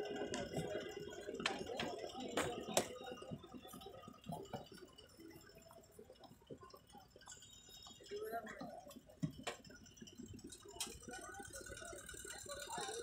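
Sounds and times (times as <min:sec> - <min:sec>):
market background noise: 0:00.0 - 0:13.0.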